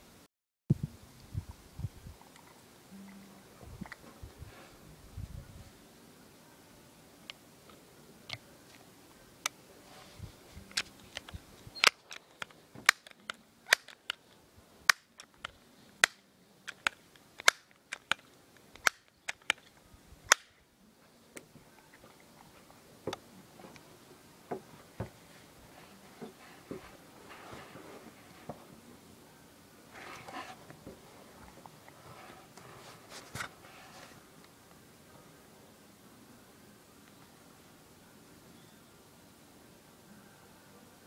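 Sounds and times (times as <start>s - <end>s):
air pistol clicks and pops: 10.7s - 14.3s, 14.9s - 19.7s, 20.3s - 20.6s.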